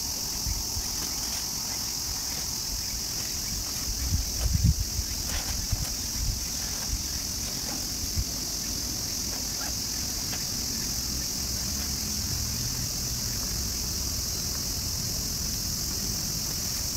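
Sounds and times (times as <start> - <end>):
insects chirring: 0.0 - 16.9
backpack knocks and rustles: 3.2 - 8.0.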